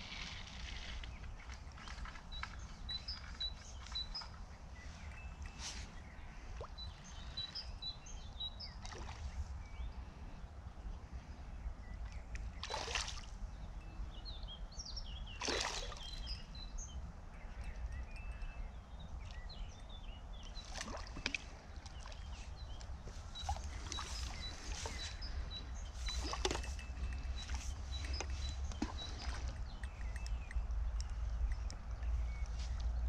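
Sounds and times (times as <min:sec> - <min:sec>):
small birds chirping: 0:00.0 - 0:33.0
wind rumble on microphone: 0:16.0 - 0:33.0.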